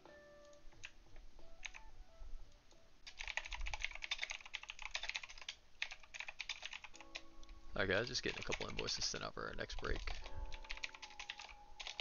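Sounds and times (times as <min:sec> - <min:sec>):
typing on a computer keyboard: 0:01.6 - 0:01.8, 0:03.1 - 0:07.2, 0:08.2 - 0:09.0, 0:09.6 - 0:12.0.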